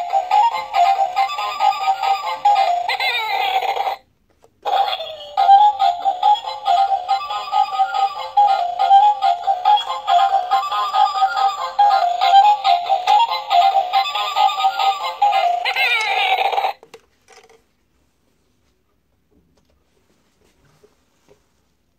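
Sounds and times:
toy beeping electronic melody: 4.7 - 15.8.

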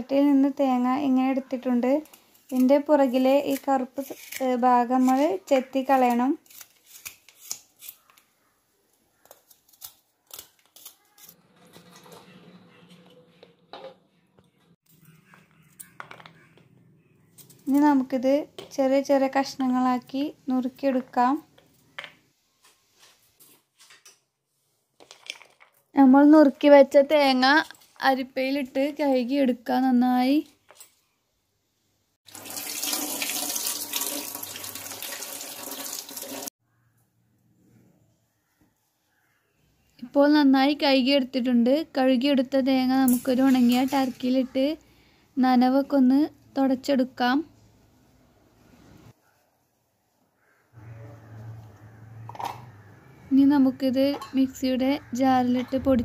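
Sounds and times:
knife scraping coconut skin: 2.4 - 5.4, 6.4 - 8.2.

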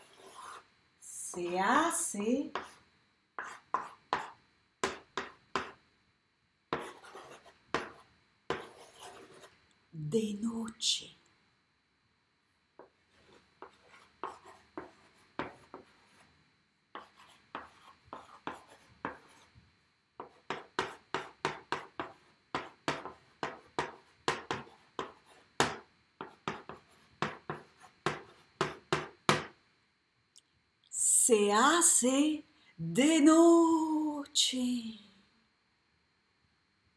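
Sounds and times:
chalk writing on blackboard: 0.0 - 0.7, 2.5 - 2.8, 3.4 - 5.8, 6.7 - 9.5, 12.8 - 16.3, 16.9 - 19.5, 20.2 - 29.6.

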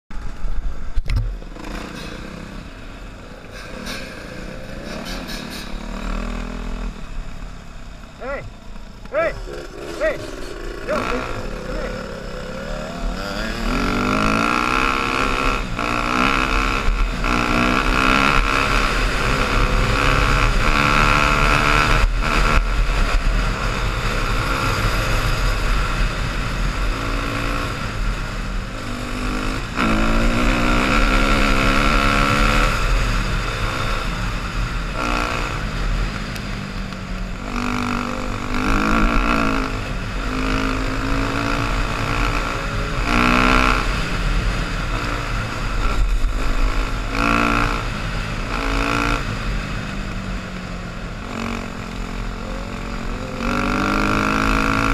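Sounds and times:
dirt bike engine accelerating: 0.1 - 54.9.

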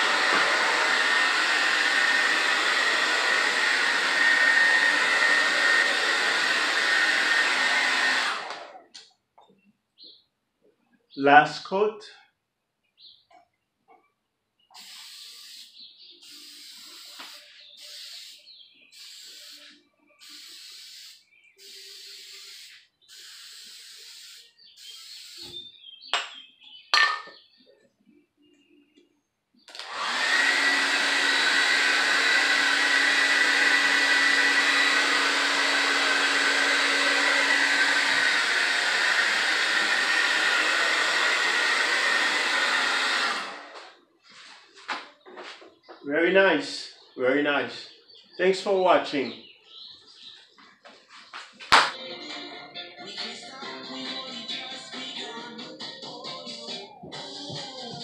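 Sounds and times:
hair dryer blowing: 0.0 - 8.9, 14.8 - 18.4, 29.7 - 43.9
aerosol spray can hissing: 14.8 - 25.6.

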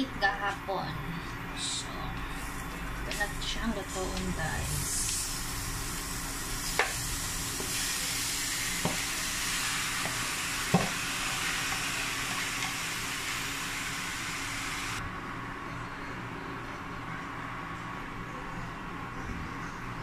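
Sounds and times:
meat sizzling in a pan: 4.6 - 15.0.

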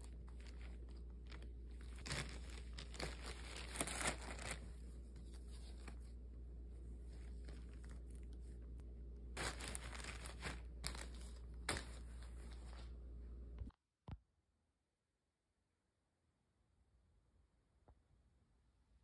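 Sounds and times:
plastic bag crinkling: 0.0 - 6.1, 6.9 - 8.8, 9.4 - 12.9.

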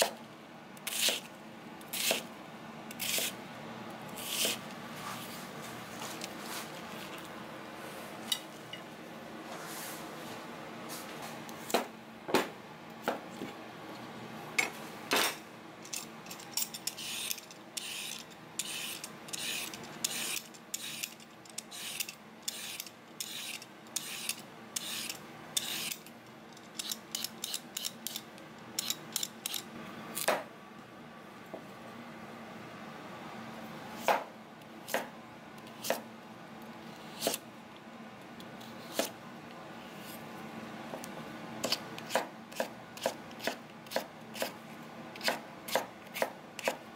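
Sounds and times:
peeler scraping carrot: 0.8 - 1.3, 1.9 - 2.3, 2.9 - 3.4, 4.1 - 4.7, 16.8 - 26.1, 26.7 - 28.2, 36.9 - 37.4, 41.6 - 44.6.

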